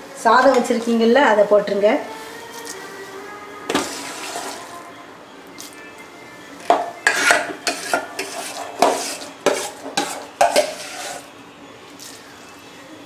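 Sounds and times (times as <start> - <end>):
metal spoon scraping steel pot: 6.7 - 11.3.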